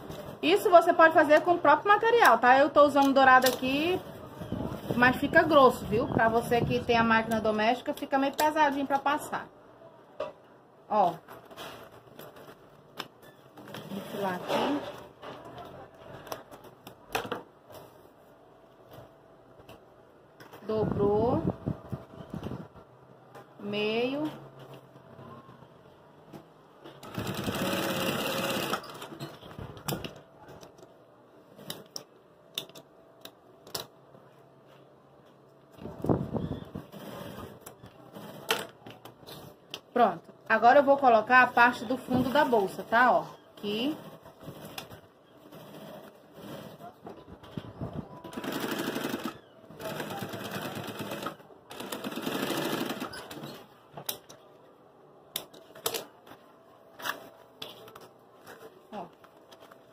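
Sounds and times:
sewing machine stitching: 27.0 - 29.2, 48.3 - 53.6.

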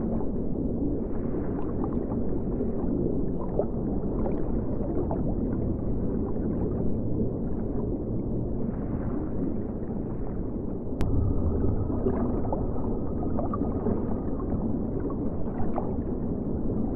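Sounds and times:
underwater rumble: 0.0 - 16.9
faint thin tone: 11.0 - 16.2
bubbling: 11.0 - 16.9.

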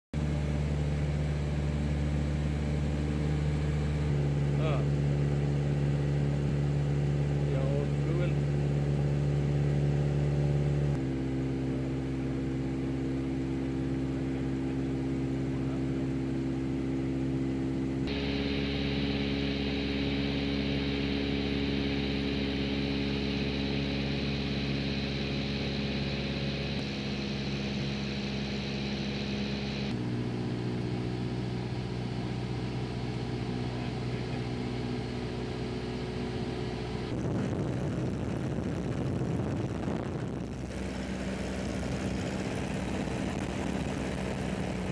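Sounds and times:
helicopter engine and rotor: 18.1 - 30.2.

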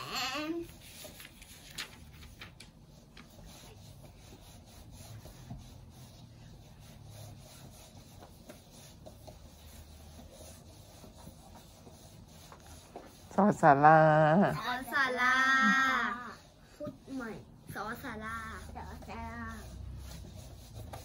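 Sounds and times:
paper pages rustling: 0.7 - 3.4.

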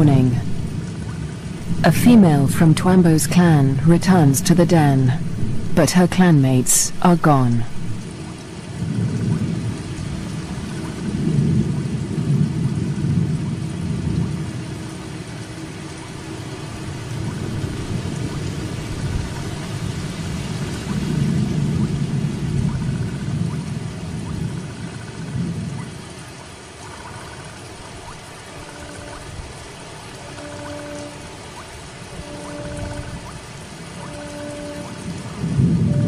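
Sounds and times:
low rumble: 0.0 - 6.0
heavy rain: 0.0 - 36.0.

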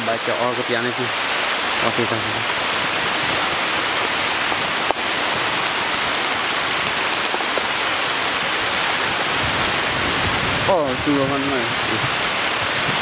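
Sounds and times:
steady hiss of water: 0.0 - 13.0.

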